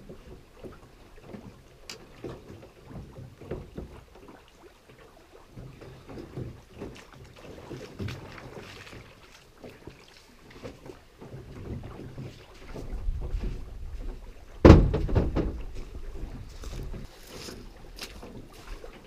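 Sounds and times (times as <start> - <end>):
splashes of wading: 0.0 - 19.0
wind on microphone: 12.6 - 18.9
loud thump: 14.6 - 15.7.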